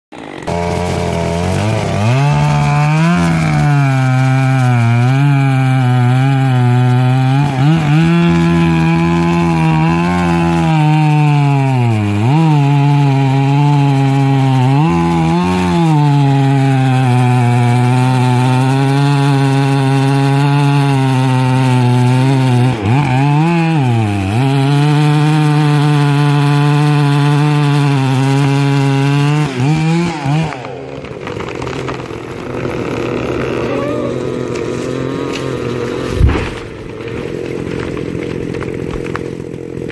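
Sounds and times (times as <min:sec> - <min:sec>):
chainsaw cutting wood: 0:00.1 - 0:39.9.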